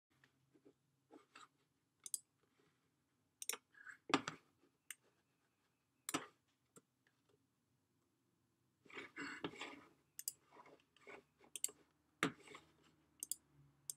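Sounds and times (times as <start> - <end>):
mouse and keyboard clicking: 2.0 - 2.2, 10.2 - 10.4, 11.6 - 11.8, 13.2 - 13.9.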